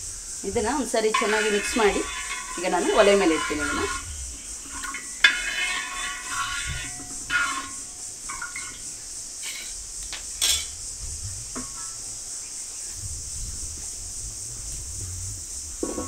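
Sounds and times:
ladle scraping brass pan: 0.5 - 9.8
metal clinks and knocks: 1.0 - 10.8.

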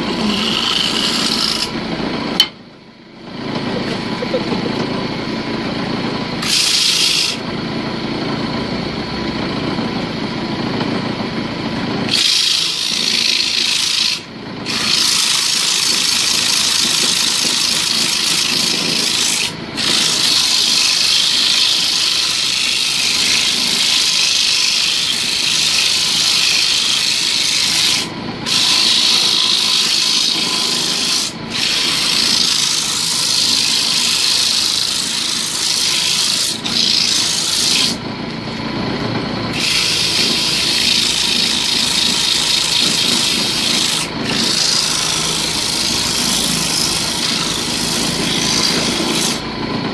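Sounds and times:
wood lathe motor humming: 0.0 - 2.5, 3.3 - 49.9
sandpaper rasping on wood: 12.1 - 38.0, 39.6 - 49.4.

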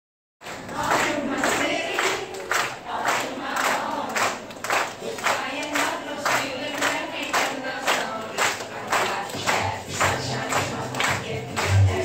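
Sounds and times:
children singing together: 0.5 - 12.0
steady beat: 9.4 - 12.0.

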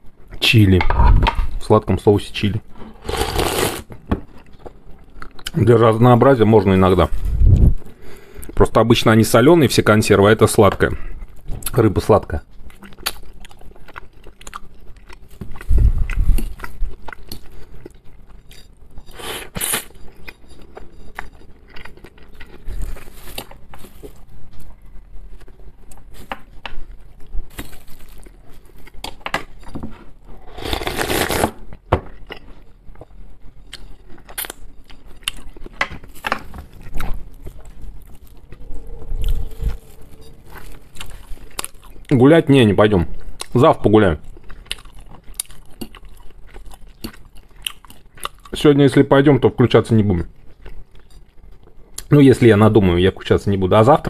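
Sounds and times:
chewing and mouth noises: 12.5 - 29.2, 32.1 - 48.6, 49.9 - 52.1.

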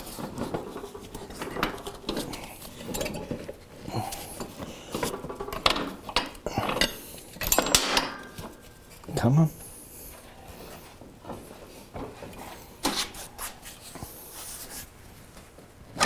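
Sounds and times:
metal parts clattering: 4.2 - 8.6.

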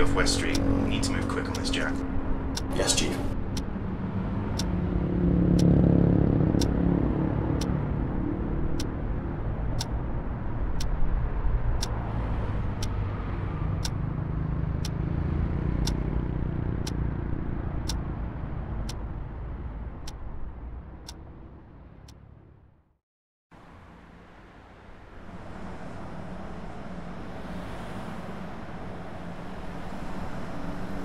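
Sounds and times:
clock ticking: 0.0 - 3.7, 6.6 - 6.8, 7.6 - 7.8, 11.8 - 12.0, 17.8 - 18.1, 18.8 - 19.0.

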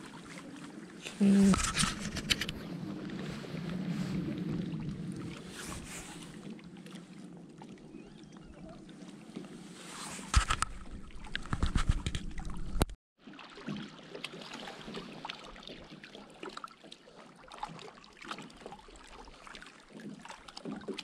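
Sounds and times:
water trickling and lapping: 0.0 - 21.0
low rumble: 2.0 - 6.7.

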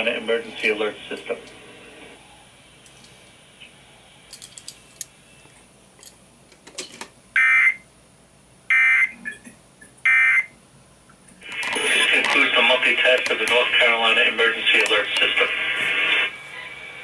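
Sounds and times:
radio broadcast audio: 0.0 - 2.2, 11.4 - 17.0.

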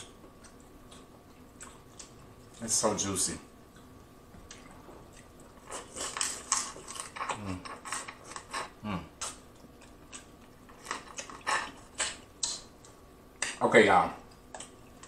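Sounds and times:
wet chewing and lip-smacking: 0.0 - 2.6, 3.6 - 13.6, 14.2 - 15.0
person humming mmm: 8.8 - 9.3.

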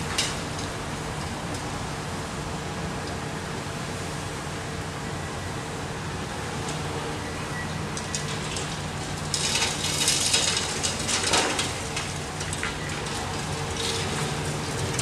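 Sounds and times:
concrete crunching and clattering: 8.0 - 15.0.

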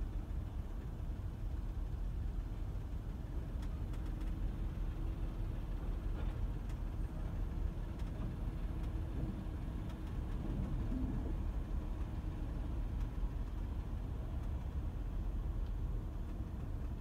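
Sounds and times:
idling vehicle engine rumble: 0.0 - 17.0
faint clicks: 9.8 - 12.2, 12.9 - 14.8.

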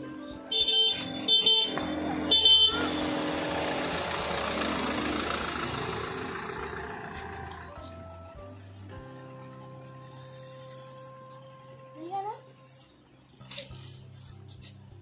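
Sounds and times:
car horn short blasts: 0.5 - 3.1
car running: 0.8 - 8.9.

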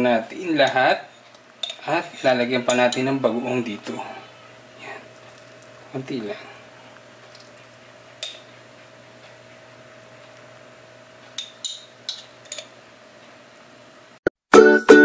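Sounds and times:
faint room hum: 0.0 - 14.2
spoon clinking against dishware: 2.7 - 3.2, 11.4 - 12.7.

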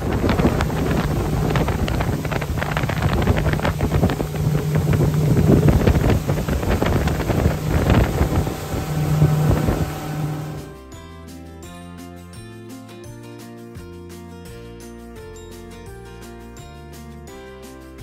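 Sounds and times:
water rushing from wake: 0.0 - 10.7
wind buffeting microphone: 0.0 - 10.7
boat engine drone: 0.0 - 10.8.

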